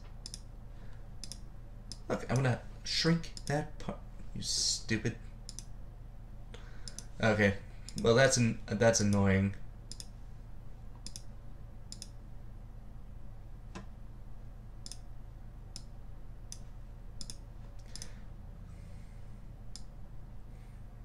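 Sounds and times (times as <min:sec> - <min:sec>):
computer mouse clicking: 0:00.0 - 0:00.5, 0:01.2 - 0:02.5, 0:03.4 - 0:03.6, 0:05.5 - 0:05.7, 0:06.8 - 0:07.1, 0:09.9 - 0:10.1, 0:11.0 - 0:11.3, 0:11.9 - 0:12.2, 0:14.8 - 0:15.1, 0:16.5 - 0:18.1
low steady hum: 0:00.0 - 0:21.0.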